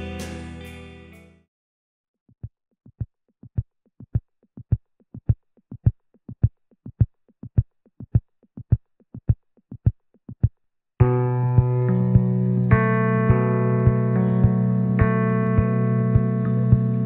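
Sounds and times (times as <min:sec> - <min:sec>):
heartbeat thumps: 0:11.6 - 0:17.0.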